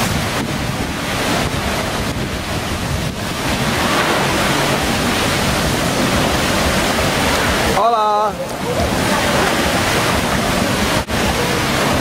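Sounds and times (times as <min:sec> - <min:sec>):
water rushing down a slide: 0:00.0 - 0:12.0
water splashing: 0:00.0 - 0:12.0.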